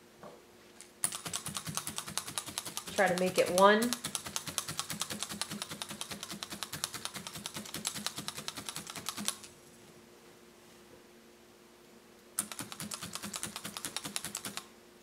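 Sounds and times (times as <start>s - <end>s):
felting needle tool clicking: 1.0s - 9.5s, 12.4s - 14.7s.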